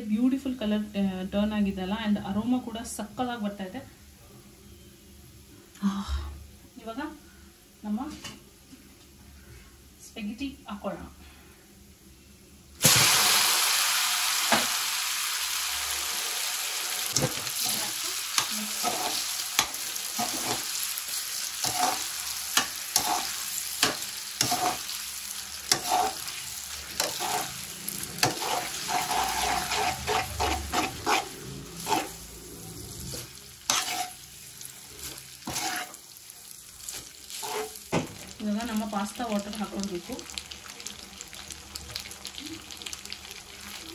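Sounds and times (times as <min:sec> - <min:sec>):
pasta sizzling in hot oil: 0:12.8 - 0:43.9
metal tongs scraping a pan: 0:17.1 - 0:20.7, 0:21.6 - 0:24.9, 0:25.7 - 0:32.2, 0:33.0 - 0:34.2, 0:35.0 - 0:36.0, 0:36.9 - 0:37.8.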